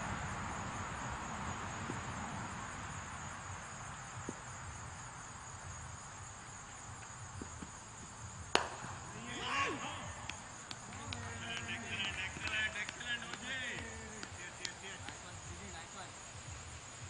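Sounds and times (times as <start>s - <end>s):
insects droning: 0.0s - 17.0s
low outdoor hiss: 0.0s - 17.0s
bat striking cricket ball: 8.5s - 15.2s.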